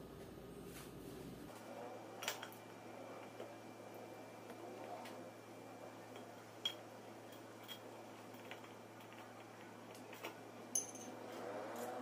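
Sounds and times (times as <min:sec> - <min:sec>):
faint steady hum: 0:00.0 - 0:12.0
clicks and clinks of metal parts: 0:06.2 - 0:11.2.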